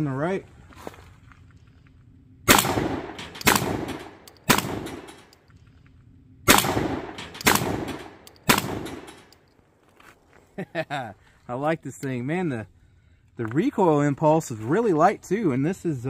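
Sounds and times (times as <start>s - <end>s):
shotgun shots: 2.4s - 5.3s, 6.4s - 9.3s.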